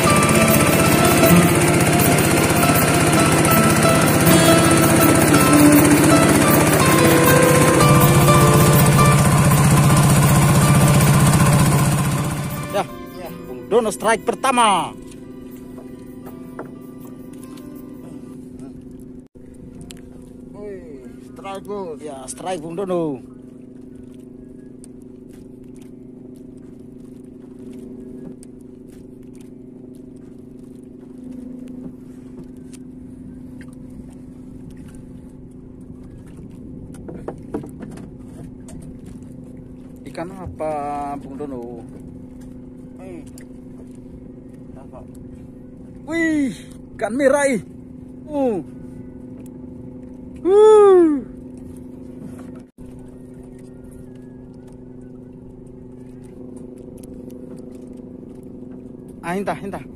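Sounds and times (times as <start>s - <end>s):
boat engine humming: 0.0s - 59.9s
man whooping: 50.4s - 51.3s.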